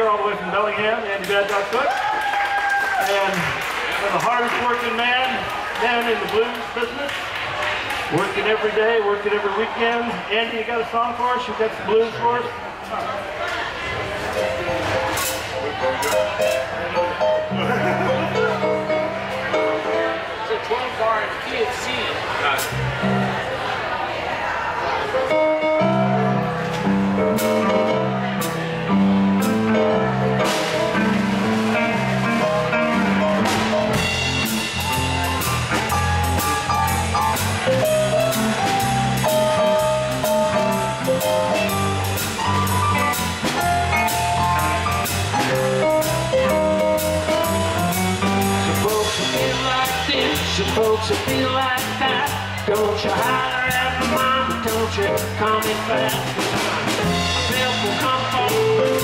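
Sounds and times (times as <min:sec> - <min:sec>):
keyboard: 0:13.7 - 0:59.0
drum kit beat: 0:14.3 - 0:19.8, 0:25.8 - 0:59.0
electric bass: 0:14.3 - 0:20.3, 0:22.5 - 0:23.6, 0:25.2 - 0:59.0.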